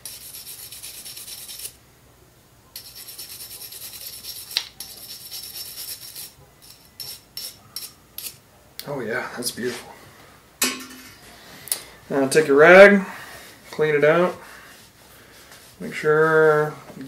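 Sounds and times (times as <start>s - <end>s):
brush scrubbing metal: 0.0s - 1.8s, 2.8s - 8.4s.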